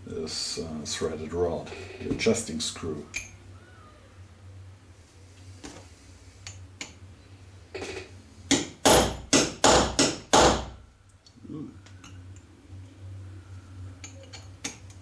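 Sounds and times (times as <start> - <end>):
hammer striking steel punch: 8.5 - 10.8.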